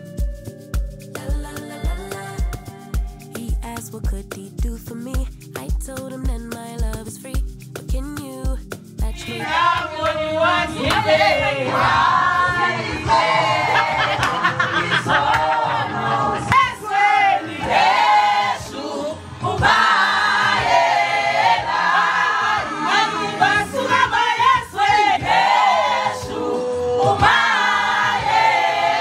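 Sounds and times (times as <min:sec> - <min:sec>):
choir singing: 0:09.1 - 0:29.0.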